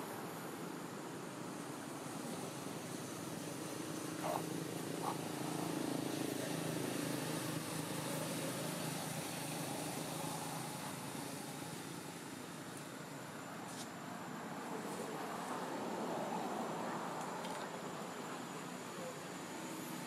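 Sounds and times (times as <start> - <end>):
distant motor traffic hum: 0.0 - 20.0
vehicle passing: 3.6 - 12.1.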